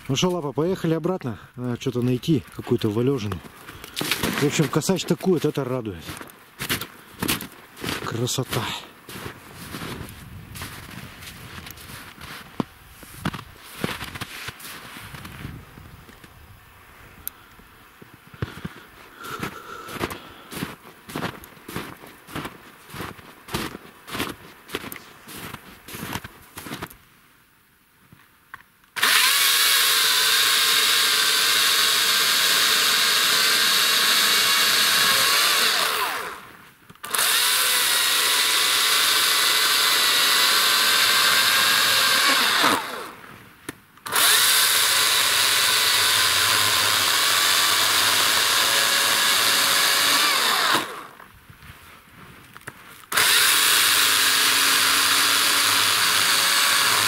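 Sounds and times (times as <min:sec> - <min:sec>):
chainsaw cutting log: 0:03.9 - 0:04.7, 0:29.0 - 0:43.3, 0:44.0 - 0:51.3, 0:53.1 - 0:57.0.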